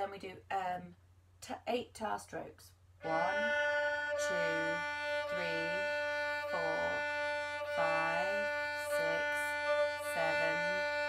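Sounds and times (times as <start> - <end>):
woman counting: 0.0 - 3.6, 4.2 - 7.1, 7.7 - 11.0
violin bowing a sustained note: 3.0 - 11.0.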